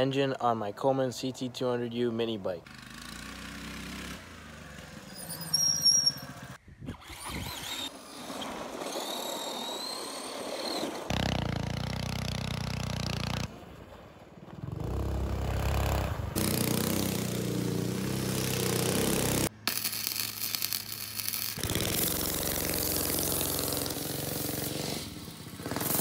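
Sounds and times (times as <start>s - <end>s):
go-kart engine running: 2.6s - 5.6s, 6.2s - 13.7s, 14.5s - 19.5s, 21.6s - 26.0s
mini bike engine running: 8.5s - 13.5s, 14.7s - 19.5s, 21.6s - 26.0s.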